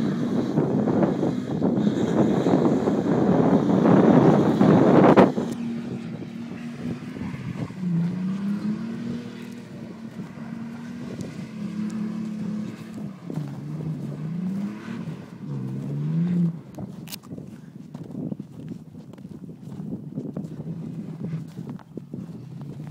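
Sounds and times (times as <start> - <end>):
pickup truck engine revving: 0.0 - 17.6.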